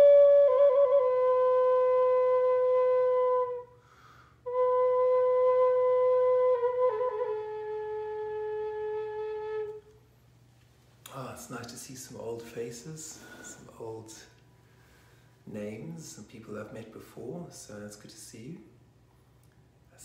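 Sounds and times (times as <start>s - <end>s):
wooden flute playing: 0.0s - 3.8s, 4.4s - 10.0s.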